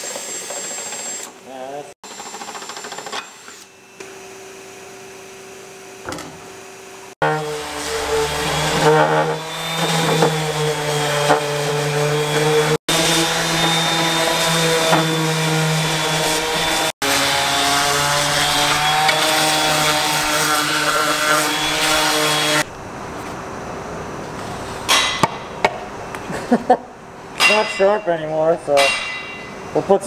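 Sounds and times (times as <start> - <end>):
electric sander running: 7.2 - 22.7.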